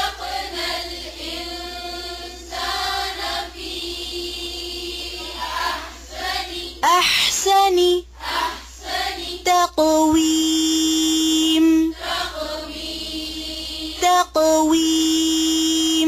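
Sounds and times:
group chanting in unison: 0.0 - 6.8, 8.2 - 9.4, 11.9 - 14.0.

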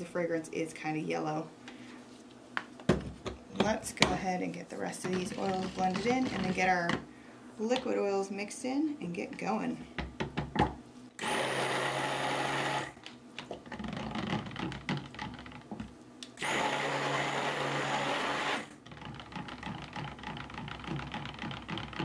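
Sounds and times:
stick blender running: 5.1 - 6.7, 11.2 - 13.1, 16.3 - 22.0.

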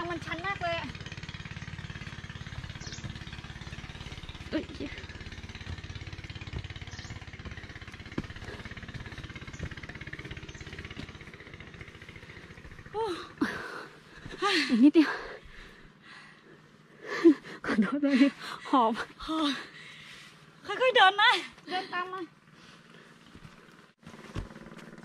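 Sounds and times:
small engine running: 0.0 - 25.0.

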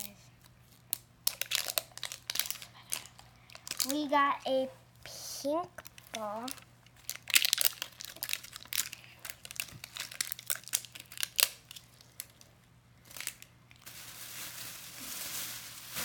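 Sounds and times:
plastic wrapper crinkling and tearing: 0.4 - 4.1, 5.8 - 16.0
even hiss: 13.8 - 16.0.

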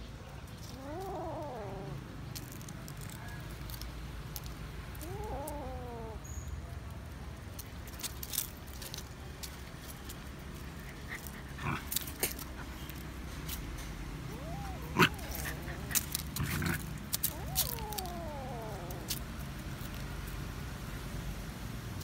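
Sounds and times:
paws clicking on paving: 0.2 - 20.6
kitten meowing: 0.6 - 2.0, 5.0 - 6.3, 14.2 - 19.4.

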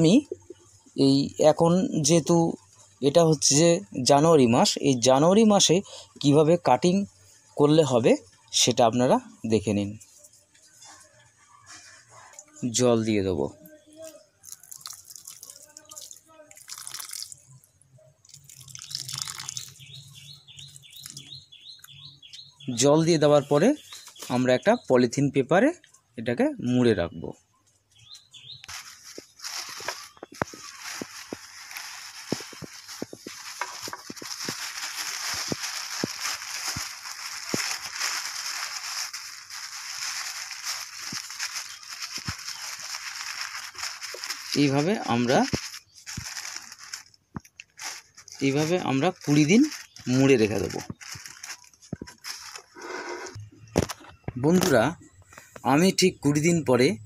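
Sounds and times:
water splashing onto soil: 14.4 - 17.4, 18.4 - 19.7
plastic bag crinkling: 14.4 - 17.5, 18.2 - 21.3, 28.6 - 53.1.

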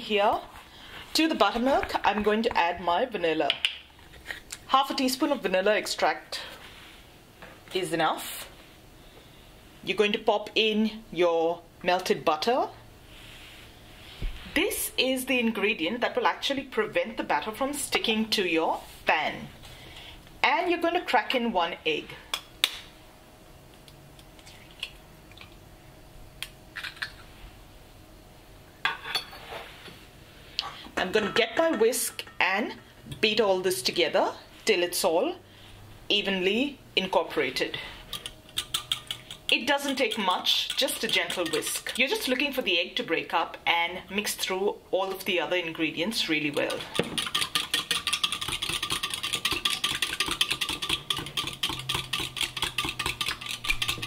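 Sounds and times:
whisk clinking against glass: 38.1 - 42.0, 47.0 - 54.0.

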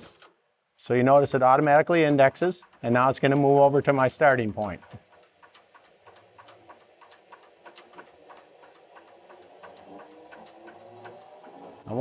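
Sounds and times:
hand wheel ticking: 1.1 - 12.0
lathe humming: 1.6 - 12.0.

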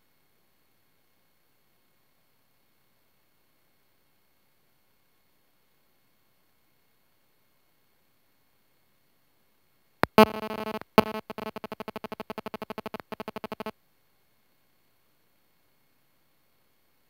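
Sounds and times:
buzzy pulsing electronic tone: 10.0 - 13.7
sharp electronic click: 10.0 - 13.7.

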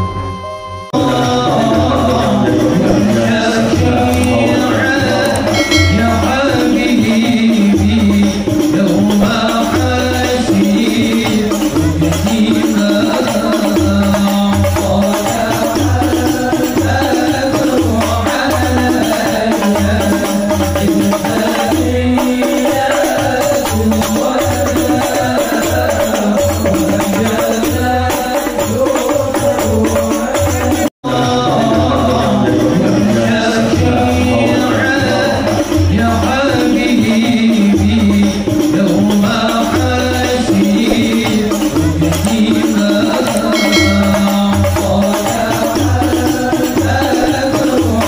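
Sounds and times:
sustained melodic notes: 5.4 - 7.0, 43.6 - 44.9.

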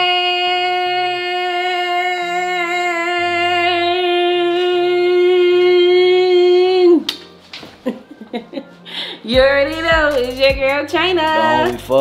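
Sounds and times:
soft bass line: 9.3 - 12.0.

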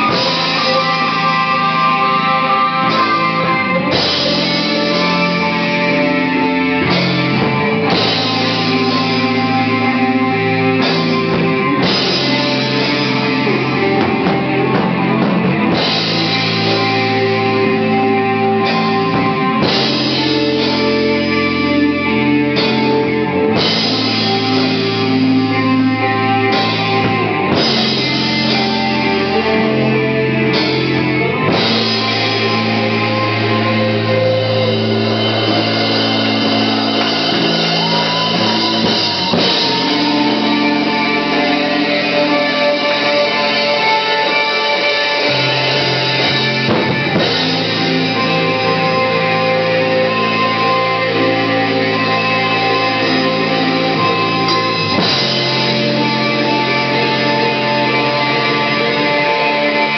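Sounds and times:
bass guitar: 0.0 - 59.9
drum kit with cymbals: 0.0 - 59.9
heavy electric guitar: 0.0 - 59.9.

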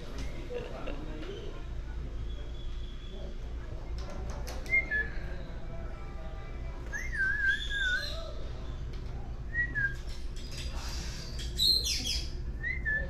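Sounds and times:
parrot whistling: 7.0 - 8.2.

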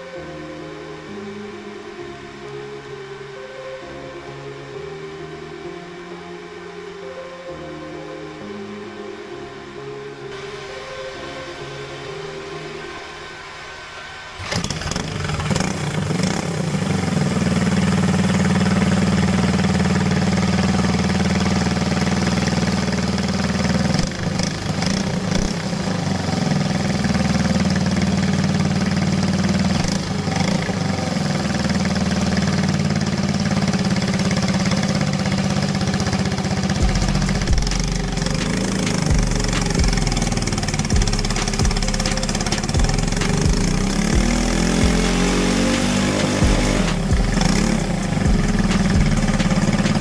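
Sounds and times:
kart engine running: 14.0 - 50.0.

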